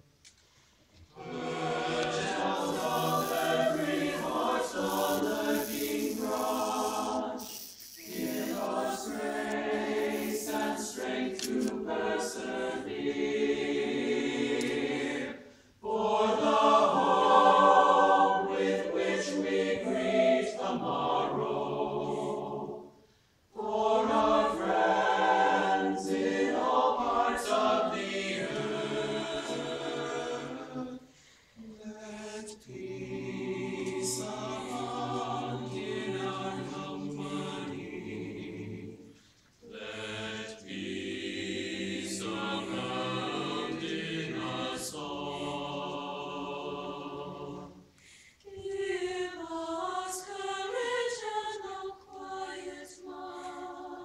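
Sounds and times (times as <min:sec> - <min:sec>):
choir singing in parts: 0:01.0 - 0:54.0.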